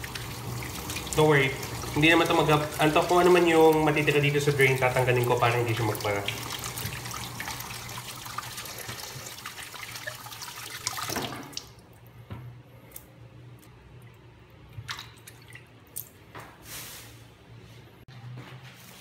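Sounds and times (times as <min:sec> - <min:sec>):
tap water running into sink: 0:00.0 - 0:11.8
water draining from basin: 0:00.0 - 0:12.0, 0:14.0 - 0:16.0
water drips: 0:00.0 - 0:12.1, 0:12.9 - 0:16.2.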